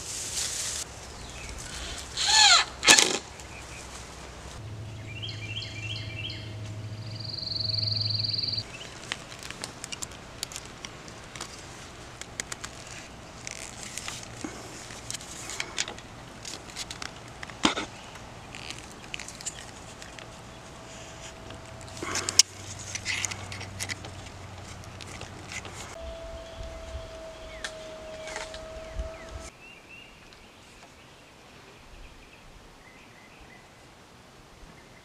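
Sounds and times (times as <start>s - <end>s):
high squeak: 1.8s - 3.0s, 25.9s - 29.5s
high whine over low hum: 3.3s - 29.5s
wire being twisted with pliers: 9.0s - 26.0s.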